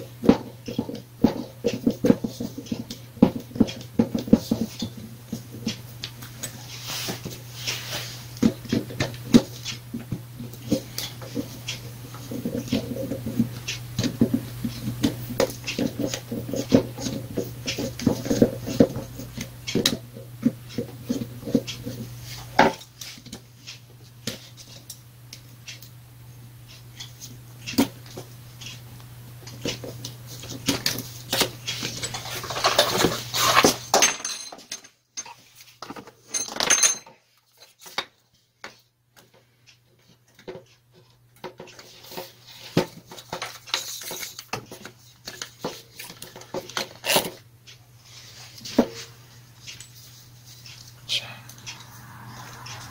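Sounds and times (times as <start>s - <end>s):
tools and screws clinking: 30.8s - 38.0s, 48.7s - 51.0s
low hum: 49.2s - 52.9s.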